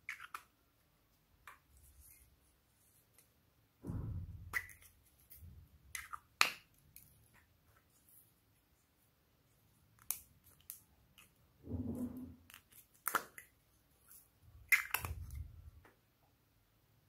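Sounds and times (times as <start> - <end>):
plastic rubbing and knocking: 11.6 - 12.7
plastic clicks and snaps: 12.5 - 13.6, 14.6 - 16.0.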